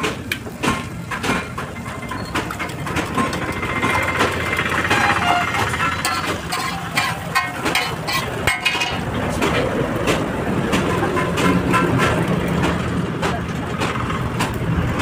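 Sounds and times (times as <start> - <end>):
metal spatula scraping griddle: 3.1 - 9.0.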